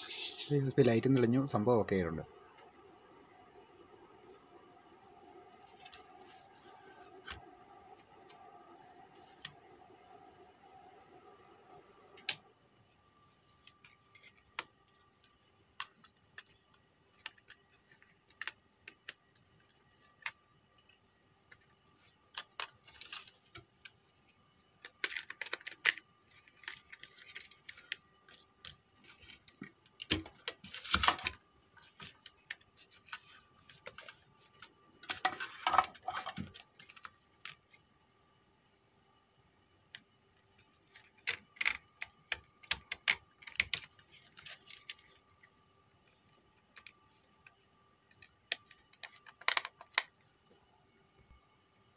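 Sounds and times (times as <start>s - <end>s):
faint steady hum: 0.0s - 51.9s
plastic and metal parts clattering: 24.8s - 37.6s.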